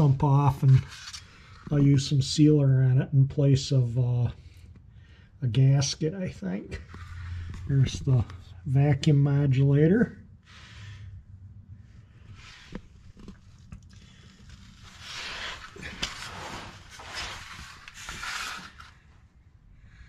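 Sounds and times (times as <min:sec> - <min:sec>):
heavy breathing: 0:10.4 - 0:11.4
rustling: 0:12.0 - 0:19.1.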